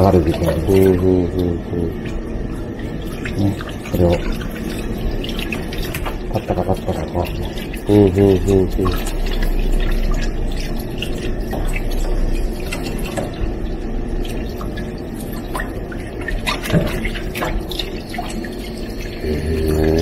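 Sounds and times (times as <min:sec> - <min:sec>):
small wet splashes: 0:00.0 - 0:20.0
tap water running into sink: 0:00.0 - 0:20.0.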